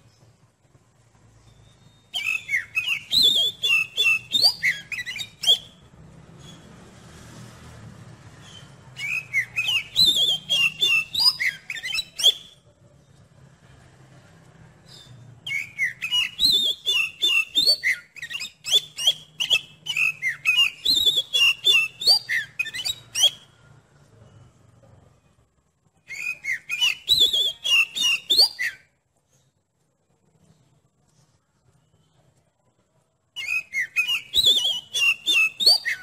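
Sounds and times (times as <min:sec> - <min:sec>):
songbird whistled phrases: 0:01.7 - 0:06.7, 0:08.4 - 0:12.6, 0:14.8 - 0:23.5, 0:26.1 - 0:28.9, 0:33.4 - 0:36.0.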